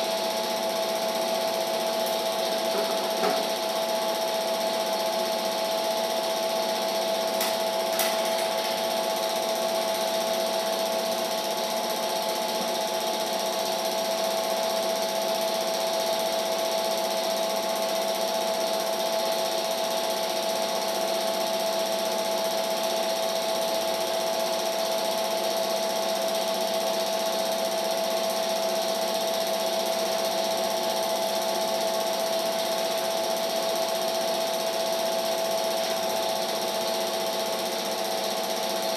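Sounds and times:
film projector whirring: 0.0 - 38.9.

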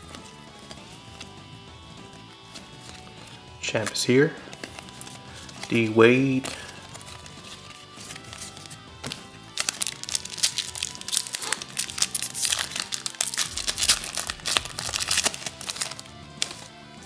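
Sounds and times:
foil wrapper tearing and crinkling: 6.4 - 16.7.

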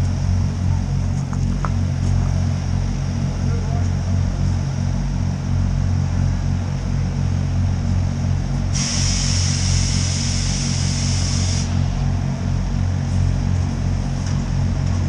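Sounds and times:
steam locomotive rumbling: 0.0 - 15.0
loud steam hiss: 8.7 - 12.2.

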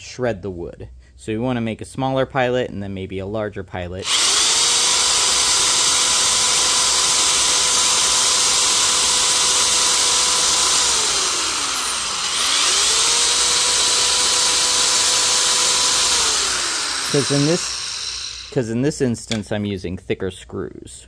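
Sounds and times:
electric drill boring into wood: 4.0 - 18.6.

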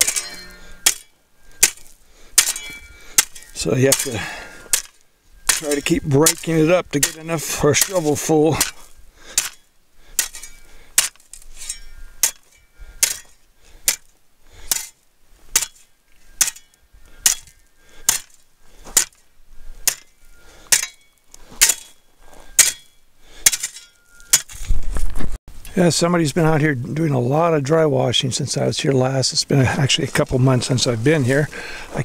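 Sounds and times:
shovel chopping rocky ground: 0.0 - 24.8.

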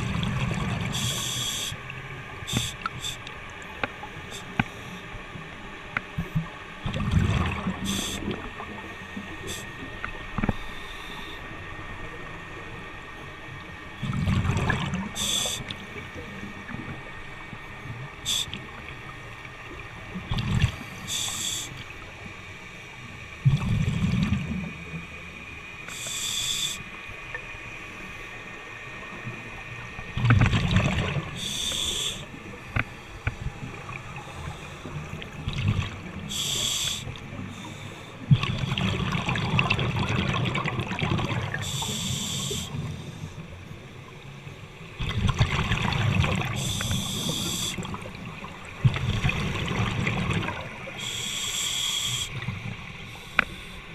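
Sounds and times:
exhaled bubbles rumbling: 0.0 - 1.1, 6.2 - 10.5, 13.9 - 19.0, 19.6 - 21.0, 23.4 - 25.0, 29.2 - 31.6, 32.3 - 36.5, 38.2 - 41.8, 44.8 - 51.1
regulator inhalation hiss: 0.9 - 1.8, 2.5 - 3.3, 7.8 - 8.4, 9.4 - 9.8, 15.2 - 15.7, 18.2 - 18.6, 20.9 - 21.9, 25.9 - 27.0, 31.4 - 32.4, 36.3 - 38.2, 41.6 - 43.3, 46.5 - 47.9, 50.9 - 53.9.

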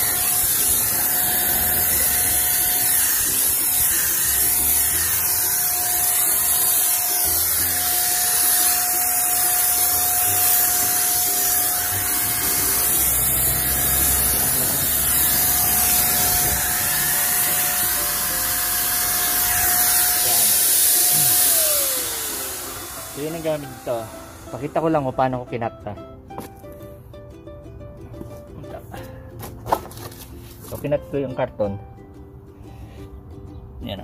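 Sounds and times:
paint sprayer motor whine: 0.0 - 25.0
paint spraying hiss: 0.0 - 25.2.

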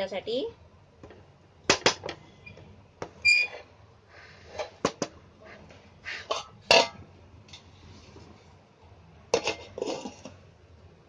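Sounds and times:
metal lid handled: 6.2 - 7.0, 9.3 - 10.4.

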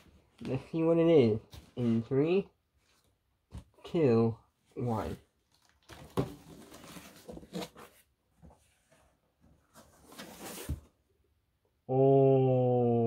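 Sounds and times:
cardboard scraping and rustling: 5.0 - 11.0.

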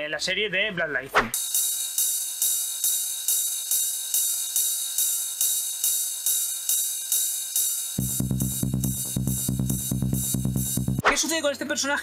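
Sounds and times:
hissy shaker percussion: 1.3 - 10.4.

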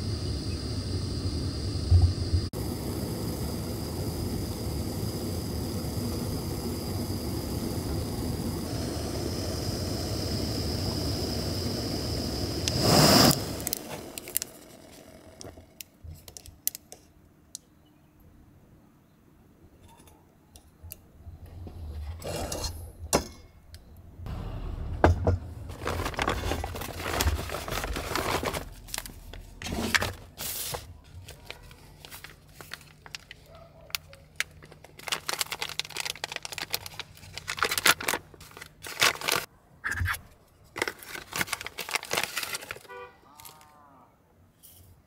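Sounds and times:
foil and paper packaging crinkling: 25.6 - 39.5, 40.7 - 43.7.

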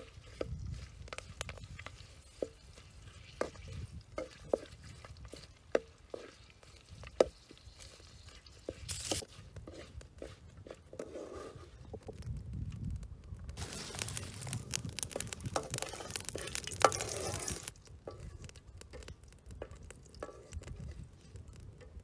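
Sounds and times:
metal ladle scraping wok: 2.0 - 12.0, 13.6 - 19.0, 20.2 - 21.0.

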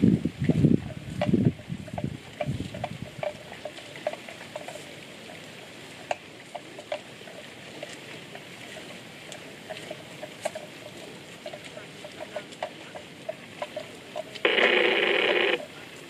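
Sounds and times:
rustle: 0.0 - 16.0
steady hiss: 3.4 - 16.0.

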